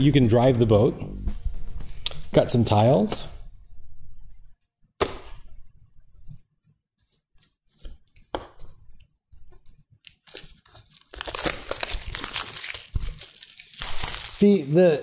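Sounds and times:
plastic wrapping rustling: 0:09.4 - 0:15.0
plastic crinkling: 0:09.5 - 0:15.0.

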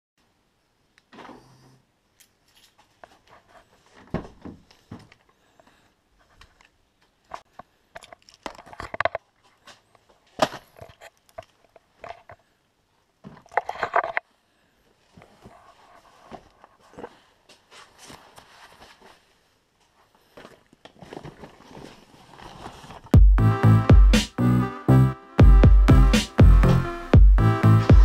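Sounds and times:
heavy thump: 0:26.4 - 0:28.0.

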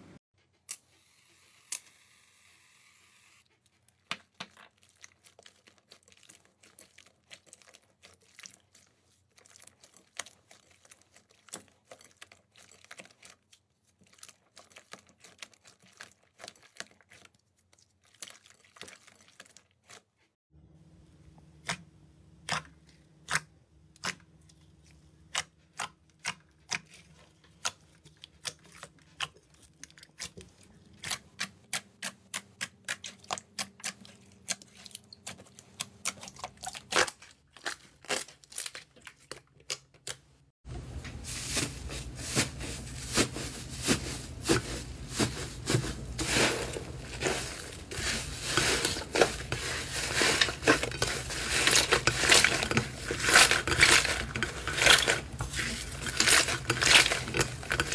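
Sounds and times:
slime squishing with wet pops: 0:21.6 - 0:40.3.

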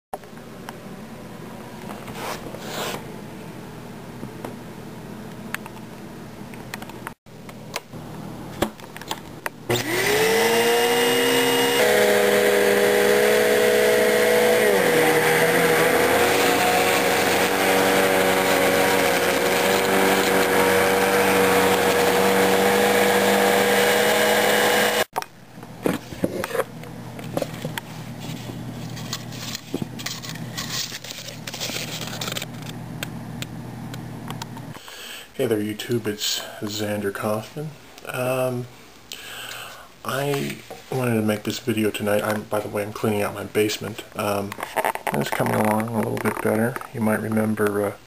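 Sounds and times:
vacuum cleaner motor running: 0:09.7 - 0:25.1.

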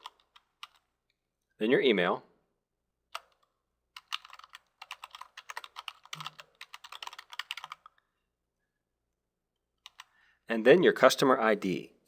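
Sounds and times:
typing on a keyboard: 0:00.0 - 0:00.8, 0:03.1 - 0:08.0, 0:09.8 - 0:10.1.

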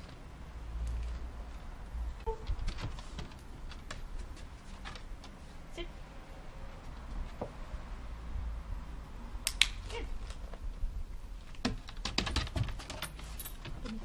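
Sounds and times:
dog claws clicking on wooden decking: 0:02.4 - 0:05.4, 0:11.4 - 0:14.0.

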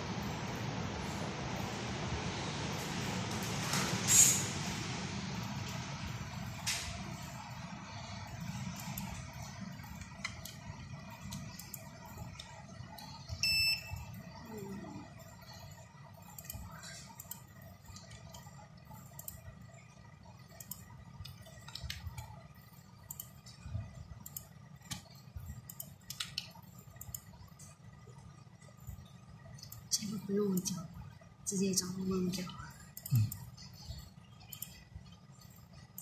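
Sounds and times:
room hum: 0:00.0 - 0:36.0
short electronic beep: 0:13.4 - 0:14.0.

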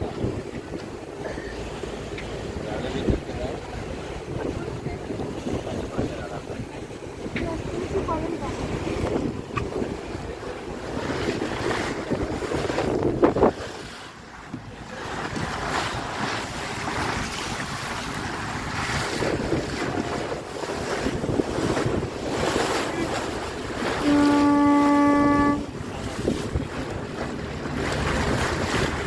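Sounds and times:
wind buffeting microphone: 0:00.0 - 0:01.2, 0:01.8 - 0:29.0
water rushing past boat: 0:00.0 - 0:29.0
boat horn blast: 0:22.3 - 0:27.0.

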